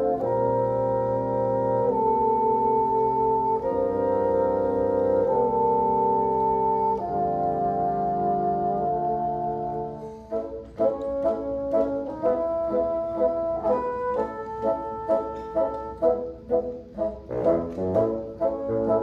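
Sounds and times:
bassoon quartet playing chords: 0.0 - 19.0
short detached bassoon notes: 9.5 - 19.0.

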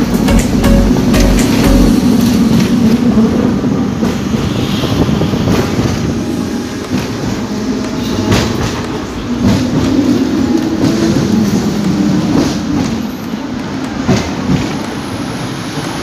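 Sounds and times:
sharp clacks: 0.0 - 2.7
tram wheels rumbling on rails: 0.0 - 16.0.

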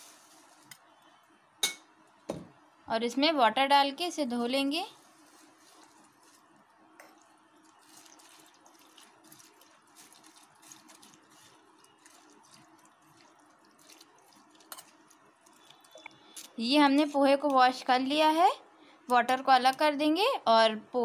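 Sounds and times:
water trickling and dripping: 7.0 - 16.4.

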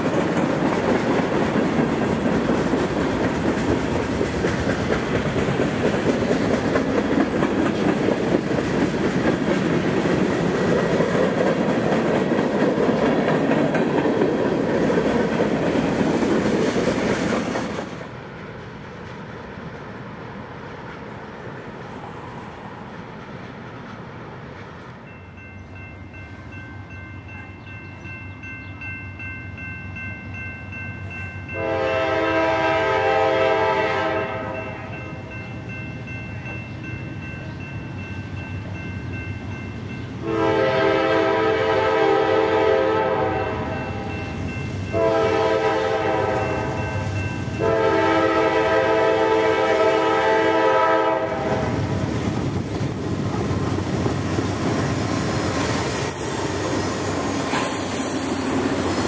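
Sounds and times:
locomotive engine and wheels: 0.0 - 59.0
locomotive air horn blasts: 31.6 - 35.0, 40.2 - 44.0, 44.9 - 46.8, 47.6 - 51.8.

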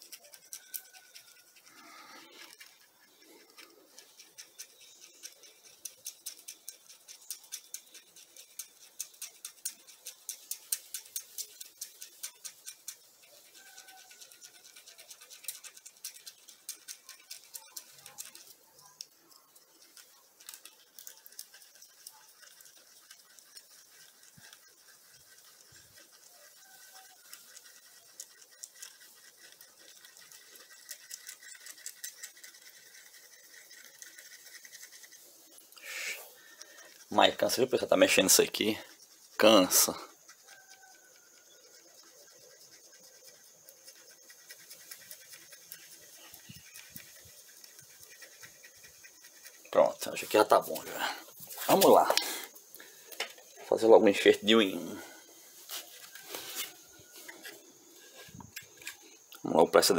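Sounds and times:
screwdriver scraping plastic cup: 0.0 - 39.1, 55.6 - 59.4.

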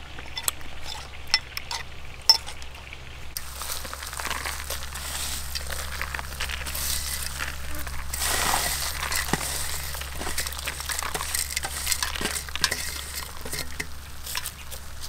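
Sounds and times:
metal spoon clinking on bowl: 0.3 - 2.6
dry rustle of scattered garlic: 3.4 - 15.0.

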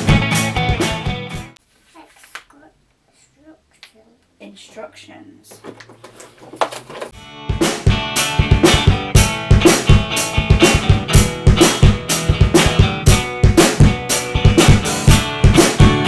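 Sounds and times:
rock music with drum beat: 0.0 - 1.6, 7.2 - 16.0.

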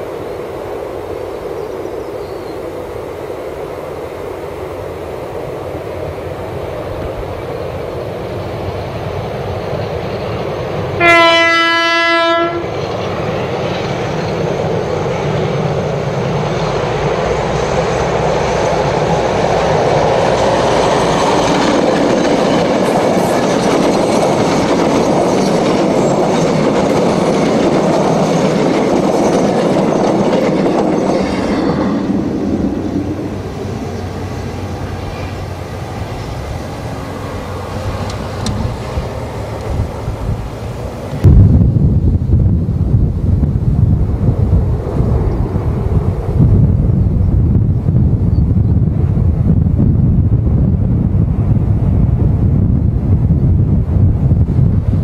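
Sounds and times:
train engines and wheels passing: 0.0 - 55.0
locomotive horn blast: 11.0 - 12.7.

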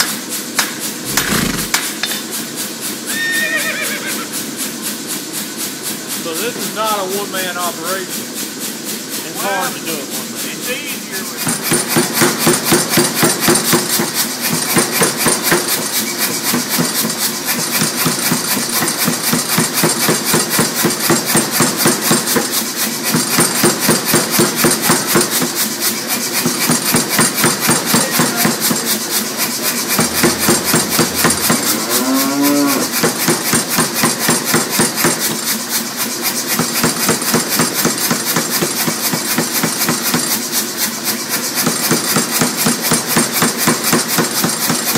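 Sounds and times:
machine hum: 27.9 - 33.1
rising wail: 29.4 - 33.0.

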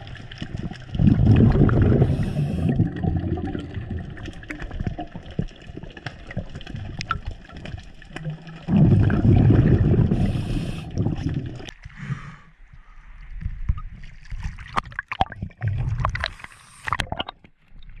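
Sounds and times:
underwater rushing and gurgling: 0.0 - 12.2
water splashing and sloshing: 0.0 - 18.0.

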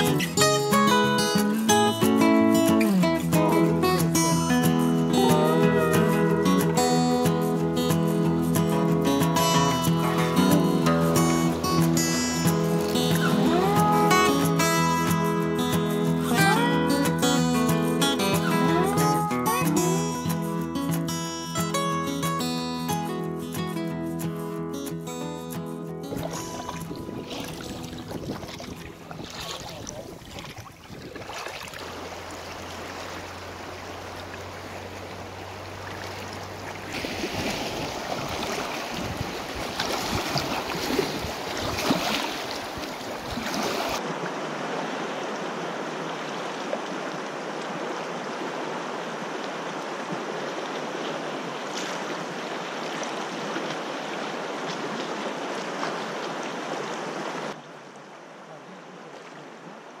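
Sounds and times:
river water rushing: 0.0 - 60.0.

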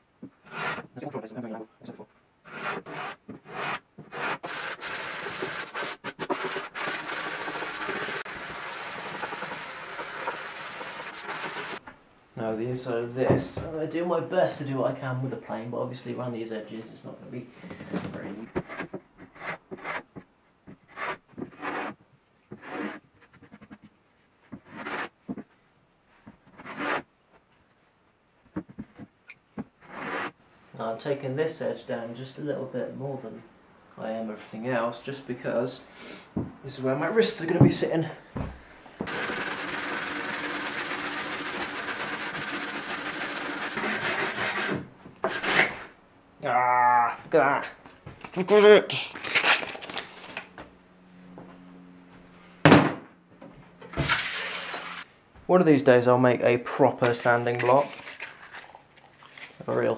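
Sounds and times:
hand plane scraping wood: 0.4 - 0.9, 2.5 - 11.8, 18.4 - 23.8, 24.6 - 25.1, 26.5 - 27.0, 29.9 - 30.3, 39.1 - 45.9
sandpaper rasping on wood: 2.5 - 11.8, 39.1 - 45.6.

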